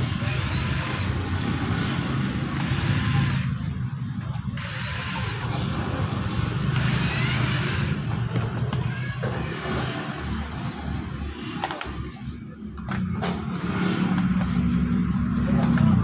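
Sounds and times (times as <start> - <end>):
cordless screwdriver whirring: 0.0 - 1.4, 2.5 - 3.7, 4.5 - 6.0, 6.6 - 8.3.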